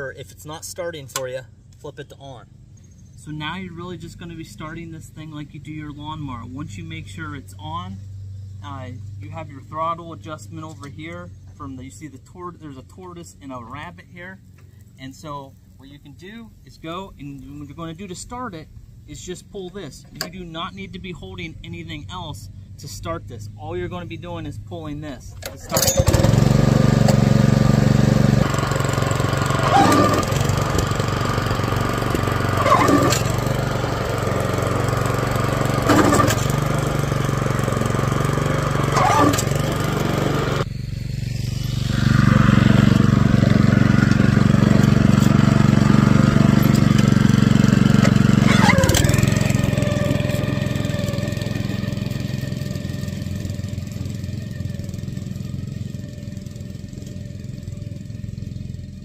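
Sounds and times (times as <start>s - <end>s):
clunk: 25.4s - 26.2s
small engine running slowly: 25.7s - 59.0s.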